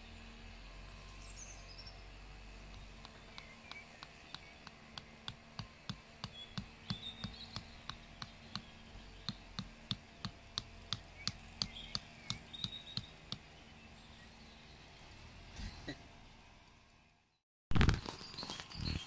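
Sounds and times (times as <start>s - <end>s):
rubber mallet tapping metal peg: 2.7s - 13.4s.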